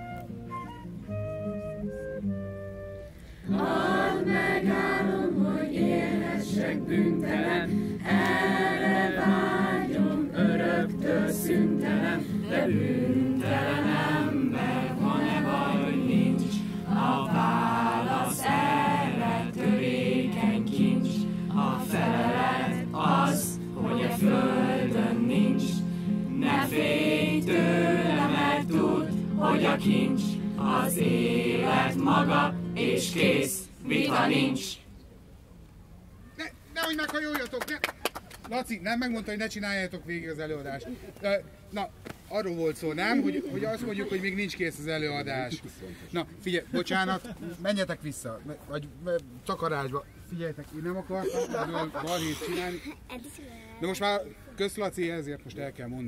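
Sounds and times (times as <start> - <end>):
flute passage: 0.0 - 4.0
group of voices singing: 3.5 - 34.9.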